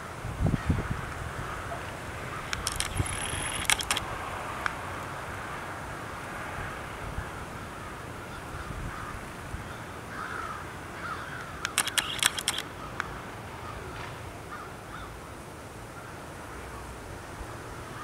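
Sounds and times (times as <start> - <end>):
sharp clicks: 2.4 - 4.8, 11.4 - 13.1
crows cawing: 7.7 - 11.8, 14.5 - 15.2.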